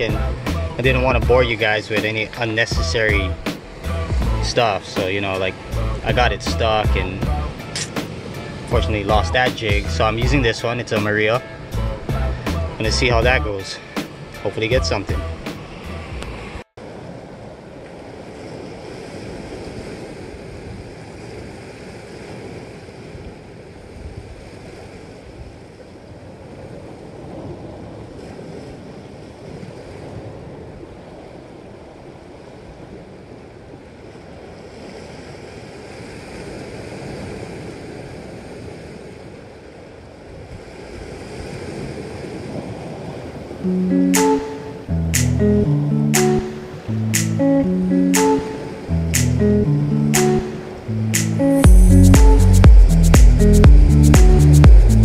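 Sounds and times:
sea surf on rocky shore: 0:00.0 - 0:53.0
wind on microphone: 0:16.1 - 0:31.2.

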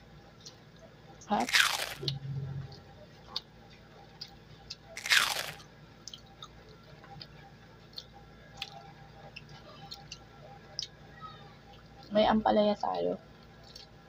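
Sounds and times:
loud crunch: 0:01.5 - 0:02.1, 0:05.0 - 0:05.6
faint chewing: 0:01.5 - 0:11.0, 0:13.3 - 0:14.0.

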